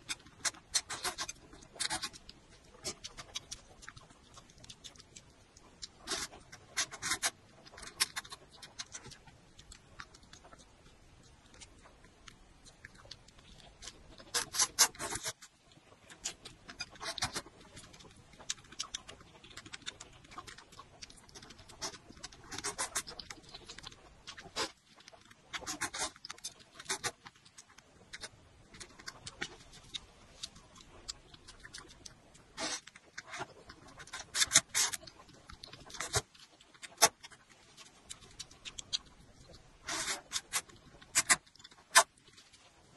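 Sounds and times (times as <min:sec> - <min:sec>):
noodles slurped and chewed: 0:00.0 - 0:42.9.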